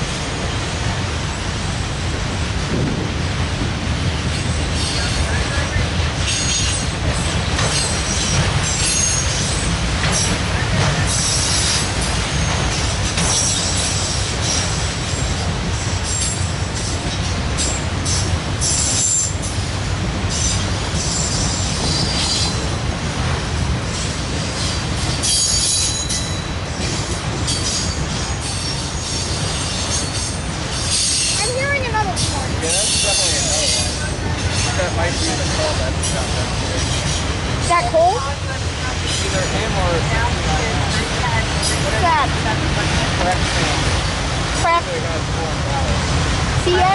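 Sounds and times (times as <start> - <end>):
train wheels rumbling on rail: 0.0 - 46.9
high squeal of wheels: 7.7 - 10.3, 20.4 - 22.6, 24.6 - 26.6, 27.5 - 31.5
high-pitched wheel squeals: 7.8 - 9.7, 24.6 - 26.6.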